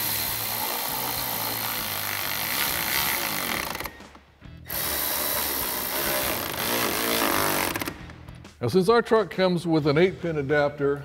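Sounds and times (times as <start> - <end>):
electric ratchet running: 0.0 - 4.0, 4.7 - 8.0.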